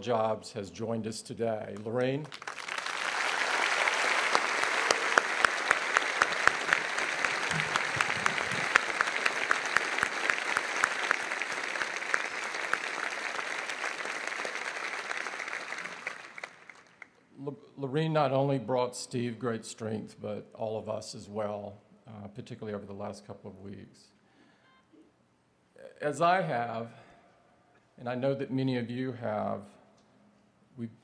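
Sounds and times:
large crowd applauding: 2.2s - 17.2s
nearby hand claps: 2.3s - 16.9s.

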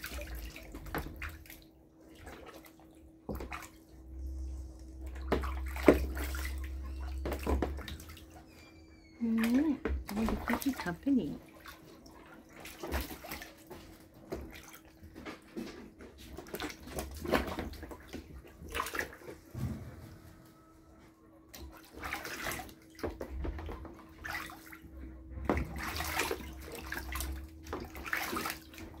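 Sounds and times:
geese splashing in water: 0.0s - 4.2s, 5.0s - 8.6s, 9.2s - 20.7s, 21.5s - 29.0s
faint steady hum: 0.1s - 10.4s.

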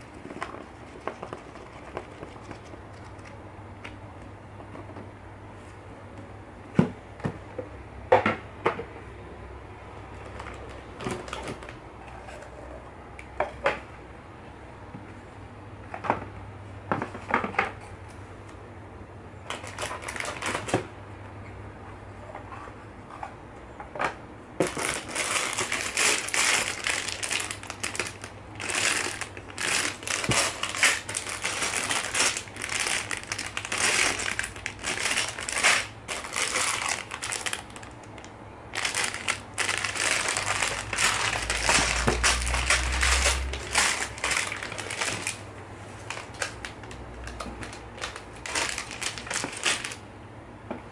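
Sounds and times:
plastic bags crinkling: 19.5s - 20.9s, 24.6s - 50.0s
plastic bricks rattling: 38.8s - 45.4s.

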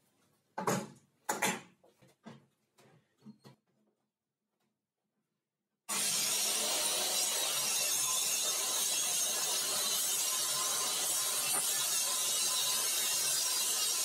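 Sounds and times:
circular saw cutting: 5.9s - 14.0s.

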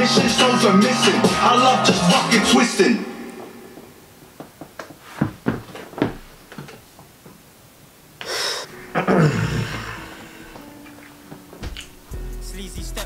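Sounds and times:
breathing: 8.2s - 8.7s
sharp rush of breath: 8.2s - 8.7s.

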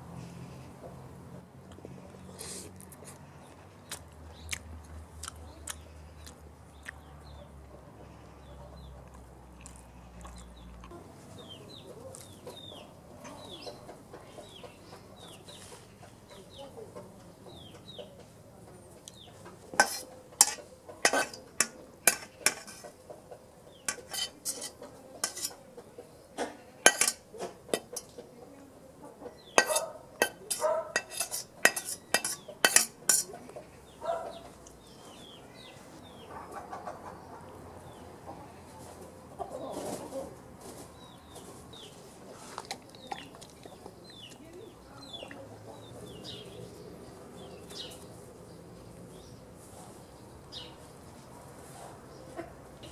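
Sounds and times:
birds chirping faintly: 1.7s - 51.3s
utensil clinking on metal pan: 19.8s - 22.9s, 23.9s - 25.6s, 26.8s - 28.1s, 29.6s - 33.4s.

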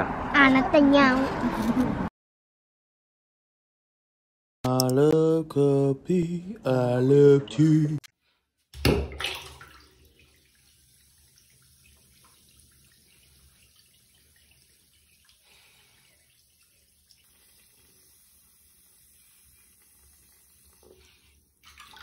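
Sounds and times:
person singing: 4.7s - 8.1s.

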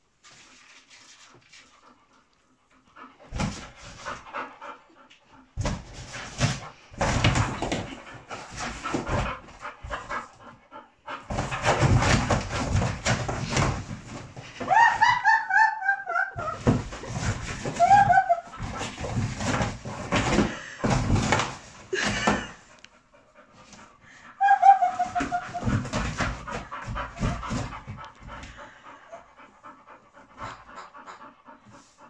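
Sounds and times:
dog panting: 0.3s - 14.6s, 16.4s - 32.0s
cardboard rustling and thumping: 5.6s - 10.1s, 11.3s - 14.7s, 16.5s - 22.5s.

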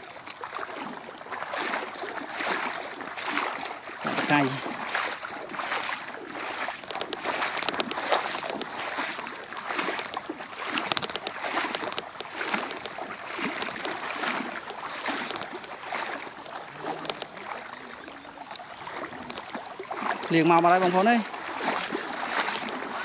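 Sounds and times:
rhythmic splashing of floodwater: 0.0s - 23.0s.

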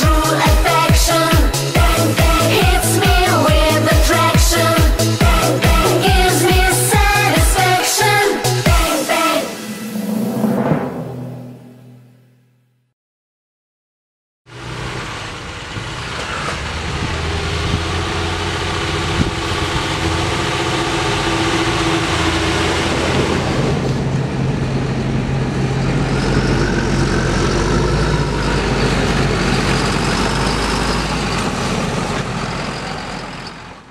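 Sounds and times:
diesel engines running: 0.0s - 9.7s, 14.5s - 33.9s
deep loud engine note: 9.5s - 12.7s, 14.5s - 32.0s.

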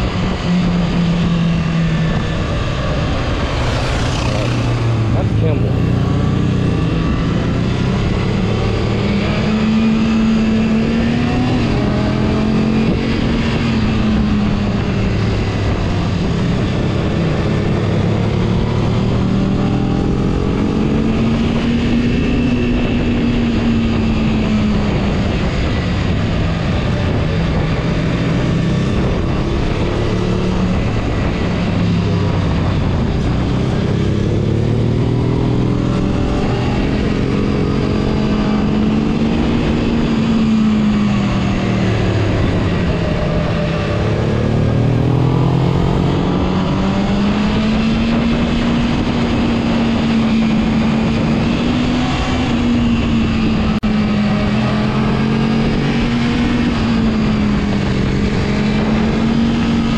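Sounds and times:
motorcycle engine revving: 0.0s - 59.9s
wind rushing: 0.0s - 59.9s.

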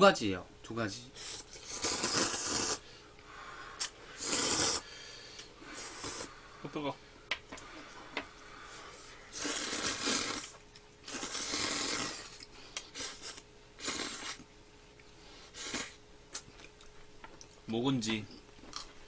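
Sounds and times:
slurping noodles: 1.2s - 2.8s, 3.8s - 4.9s, 5.6s - 6.3s, 9.3s - 14.4s, 15.5s - 16.0s.

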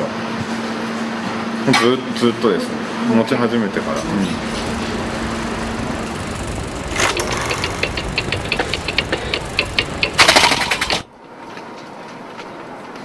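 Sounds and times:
loud burst of noise: 3.6s - 11.1s
noisy bed: 3.6s - 11.2s
even clicking: 4.4s - 11.0s.

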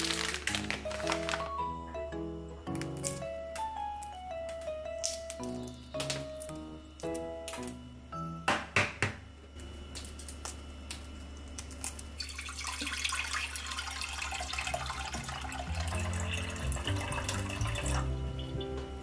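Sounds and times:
water pouring into saucepan: 12.2s - 18.6s.

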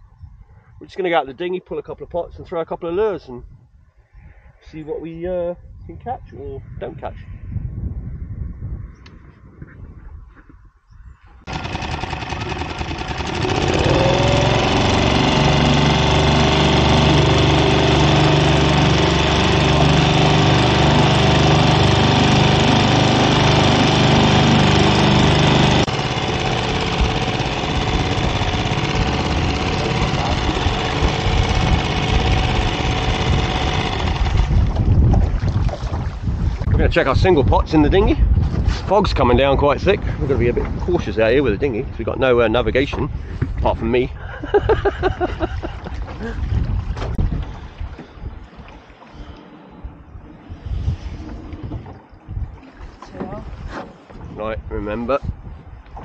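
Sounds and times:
outboard motor running: 11.5s - 36.7s, 45.0s - 54.3s
wind and water rushing: 11.5s - 41.6s, 45.2s - 56.0s.

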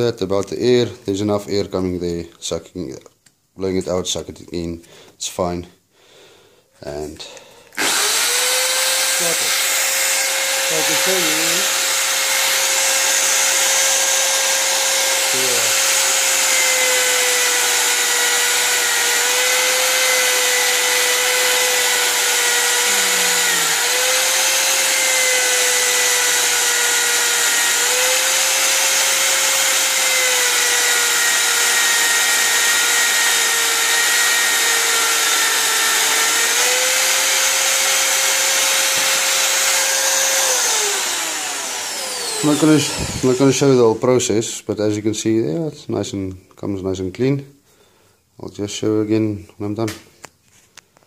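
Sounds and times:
electric drill motor whine: 7.8s - 43.8s.

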